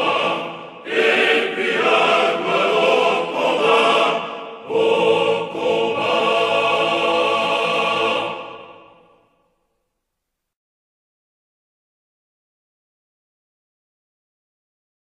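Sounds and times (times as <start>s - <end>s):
men's choir singing: 0.0s - 9.1s.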